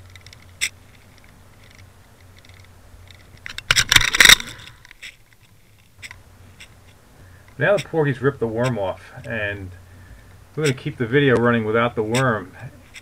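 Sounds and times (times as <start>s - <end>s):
underwater swivel clicking: 0.0s - 6.8s
rattling clatter: 2.4s - 5.2s.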